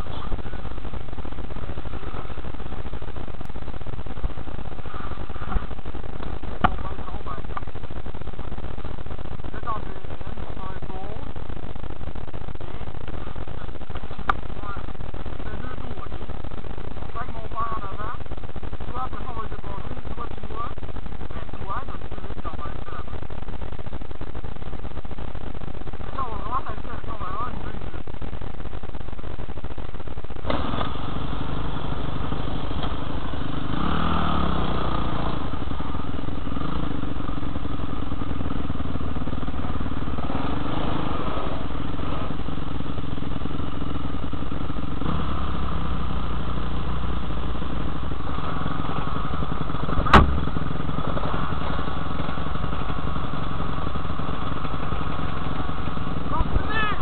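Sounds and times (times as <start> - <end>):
dirt bike engine revving: 30.4 - 57.0
sharp knock: 50.0 - 50.5.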